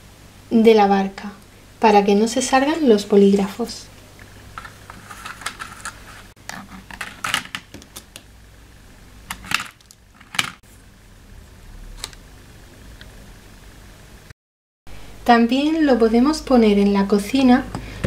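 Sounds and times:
pens clicking and knocking: 0:04.6 - 0:08.3.

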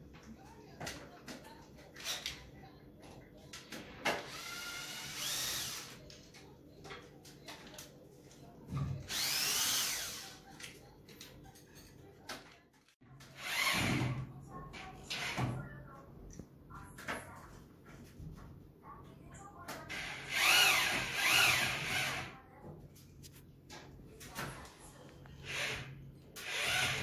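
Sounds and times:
power drill motor whine: 0:04.3 - 0:05.9, 0:09.1 - 0:10.2, 0:20.2 - 0:22.2, 0:25.5 - 0:27.0.

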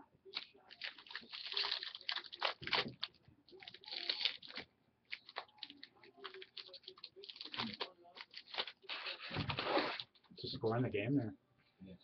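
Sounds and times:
wrapper crinkling and tearing: 0:00.3 - 0:10.2.

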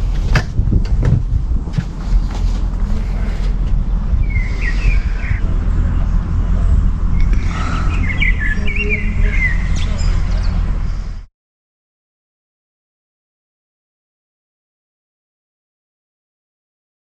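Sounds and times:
steady low rumble: 0:00.0 - 0:11.3
small birds chirping: 0:04.1 - 0:06.1, 0:07.1 - 0:11.2.

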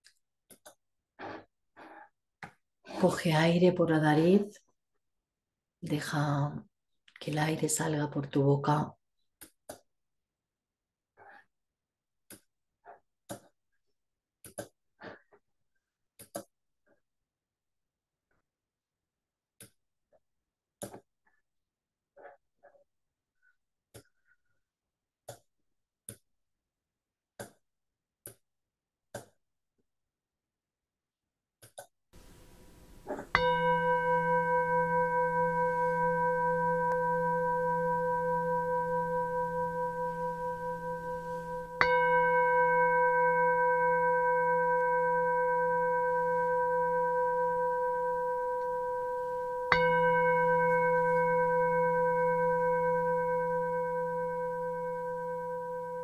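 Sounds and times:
singing bowl ringing: 0:32.6 - 0:56.0.

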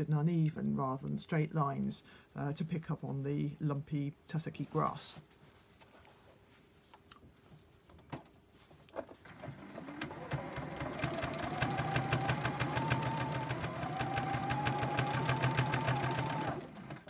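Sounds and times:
sewing machine stitching: 0:09.2 - 0:17.0.

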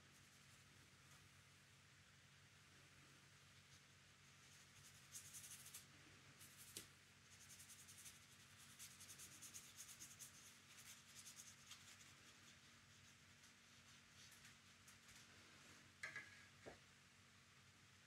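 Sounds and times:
paintbrush strokes on paper: 0:03.4 - 0:15.9.

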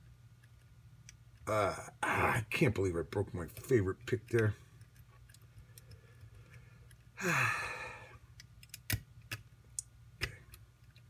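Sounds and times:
person sighing: 0:01.5 - 0:02.5, 0:07.2 - 0:08.2
lock pick clicks: 0:08.4 - 0:09.9.

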